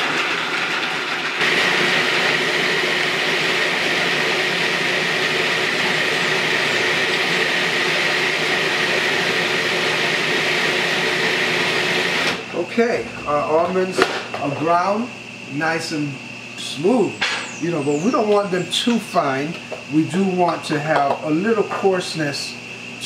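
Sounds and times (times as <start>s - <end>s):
food processor grinding nuts: 0.0s - 12.5s.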